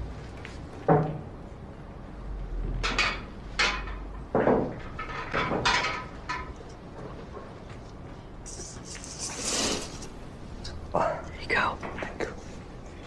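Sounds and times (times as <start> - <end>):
pool balls clacking: 2.8 - 7.5.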